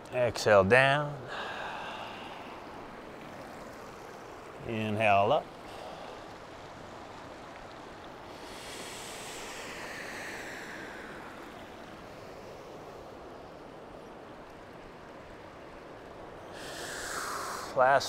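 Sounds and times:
mountain river rushing: 0.0 - 18.0
person breathing out: 1.3 - 2.6, 16.6 - 17.8.

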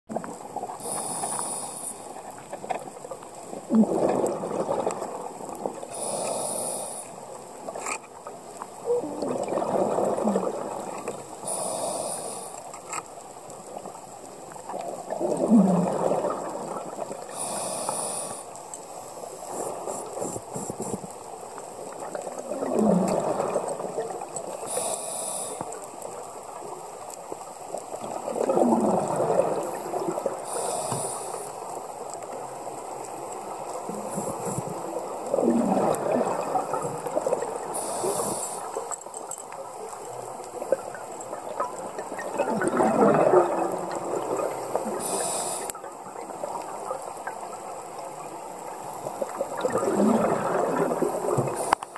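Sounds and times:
scuba regulator inhale hiss: 0.8 - 2.1, 5.9 - 7.2, 11.4 - 12.7, 17.2 - 21.0, 24.6 - 25.8, 30.4 - 31.7, 37.7 - 38.9, 44.9 - 45.8
scuba regulator bubbling exhale: 3.7 - 5.2, 8.8 - 12.6, 15.1 - 18.5, 22.2 - 25.6, 28.0 - 31.5, 33.8 - 38.8, 42.0 - 45.8, 49.2 - 51.9.

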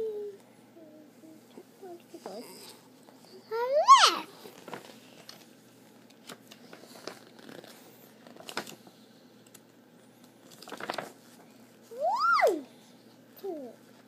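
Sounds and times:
child squealing: 3.5 - 4.3, 12.0 - 12.6
picture book rustling: 4.3 - 8.9, 10.2 - 12.6.

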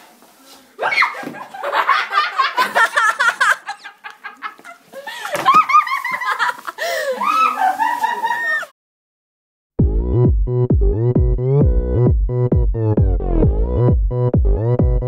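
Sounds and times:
people laughing and giggling: 0.8 - 8.7.

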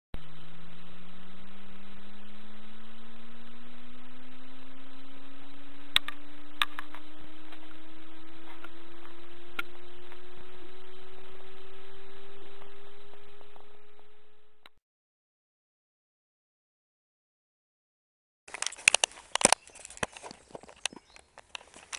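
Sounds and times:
rising electronic tone: 0.2 - 14.7
sharp clicks: 5.8 - 7.8, 18.5 - 21.9.

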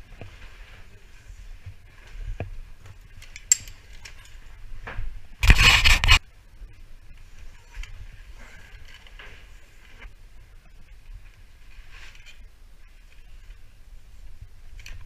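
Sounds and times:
rope and webbing rustling: 0.0 - 6.2, 7.0 - 15.0
sharp metallic click: 3.4 - 3.8
loud rubbing scrape: 5.4 - 6.2.

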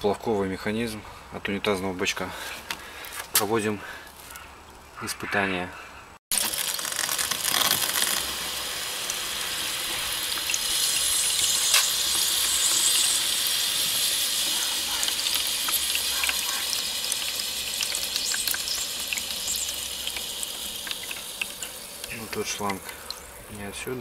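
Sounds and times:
water hissing into tub: 6.4 - 23.8.

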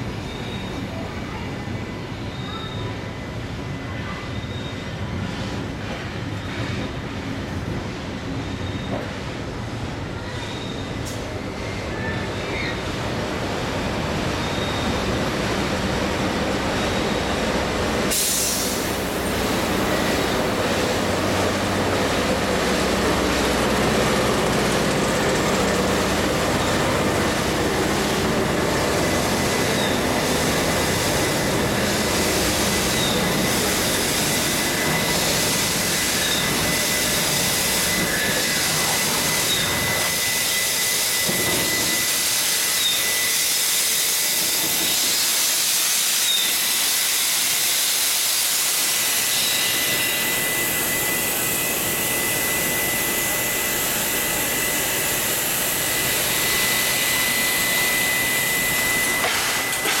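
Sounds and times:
low rumble of train rolling: 0.0 - 60.0
steam locomotive hissing steam: 14.3 - 60.0.

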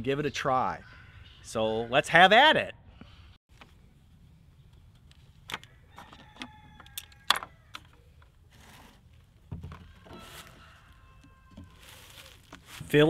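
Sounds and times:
rustling: 8.5 - 13.0.

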